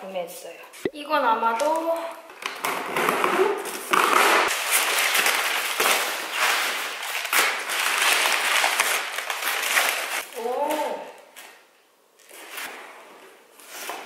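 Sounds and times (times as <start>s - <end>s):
packing tape tearing: 2.3s - 11.6s
packing paper crackling: 2.4s - 11.6s.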